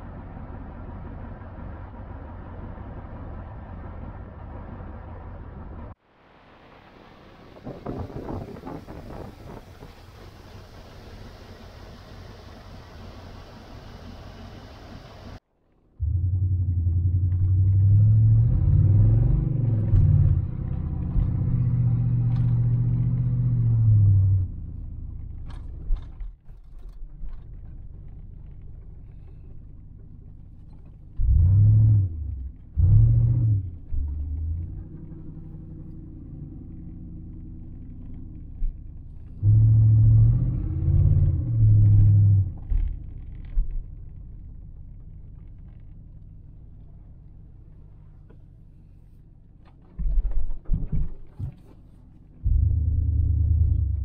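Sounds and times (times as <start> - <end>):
truck engine accelerating: 16.0 - 26.2, 27.4 - 48.9, 51.4 - 54.0.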